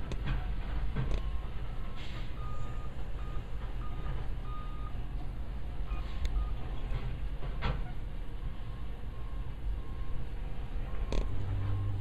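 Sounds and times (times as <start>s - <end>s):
high warning beeps: 0.1s - 5.0s, 5.8s - 6.8s, 7.9s - 10.3s.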